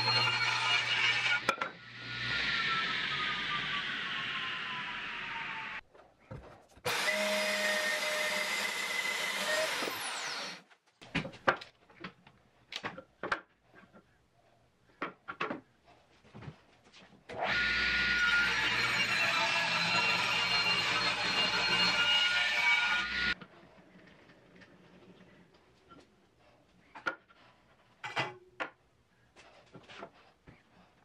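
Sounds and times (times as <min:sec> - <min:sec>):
table saw cutting wood: 0:00.0 - 0:05.8, 0:06.9 - 0:10.6, 0:17.3 - 0:23.4.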